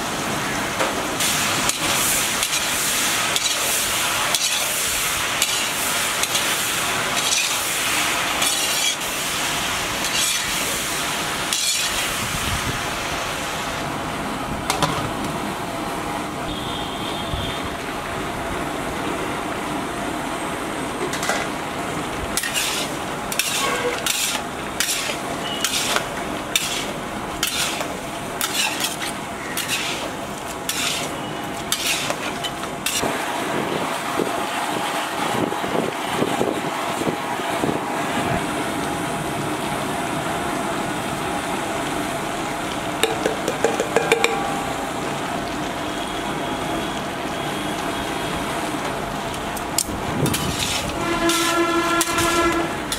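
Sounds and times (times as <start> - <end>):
frying sizzle: 0.0 - 15.4, 17.7 - 37.7, 40.8 - 52.9
metal spatula scraping a pan: 1.7 - 9.2, 10.0 - 10.9, 11.5 - 12.1, 22.4 - 33.0, 50.3 - 52.6.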